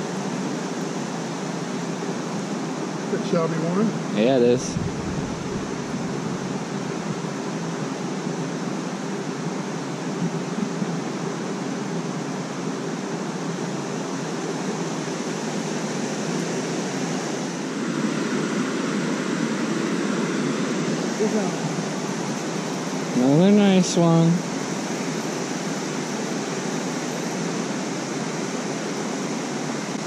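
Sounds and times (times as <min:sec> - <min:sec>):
water rushing through spillway: 0:13.6 - 0:30.0.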